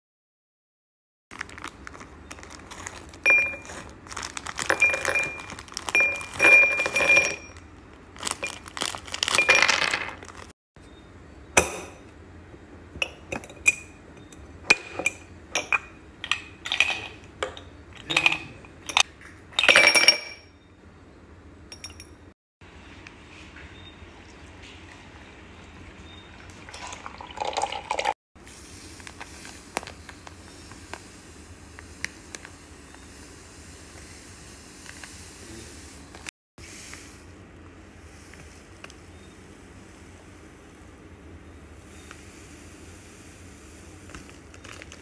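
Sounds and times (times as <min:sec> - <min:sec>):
nuts rattling into bowls: 0:02.4 - 0:07.4, 0:08.2 - 0:10.5
nuts clinking against glass jar: 0:03.2 - 0:07.6.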